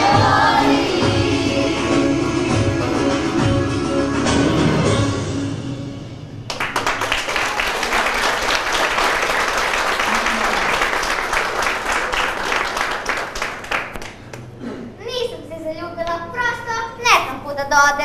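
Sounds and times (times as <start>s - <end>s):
audience applauding: 6.5s - 14.5s.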